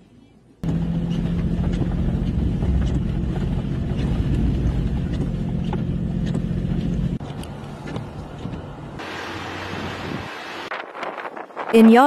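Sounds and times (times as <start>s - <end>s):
low hum: 0.6s - 10.7s
wind blowing on microphone: 9.6s - 12.0s.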